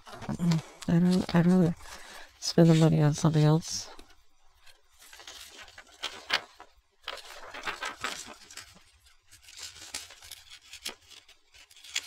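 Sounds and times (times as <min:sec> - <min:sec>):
paper crackles: 0:00.0 - 0:12.0
paper pages rustling: 0:00.0 - 0:12.0.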